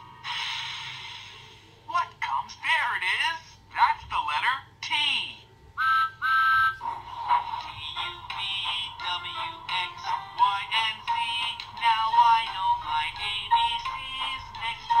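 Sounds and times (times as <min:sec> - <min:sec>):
toy playing electronic song: 0:05.8 - 0:15.0.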